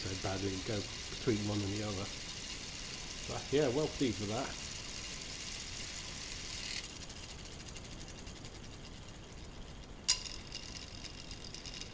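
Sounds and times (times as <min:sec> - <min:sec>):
plastic gears whirring and rattling: 0:00.0 - 0:11.9.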